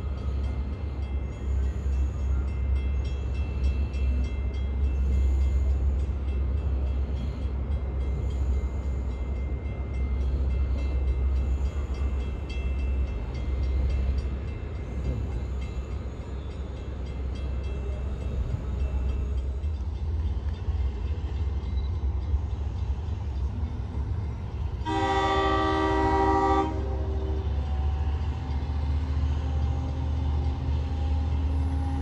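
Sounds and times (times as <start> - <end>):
train rumbling past: 0.0 - 32.0
faint rail clicks: 0.1 - 24.8.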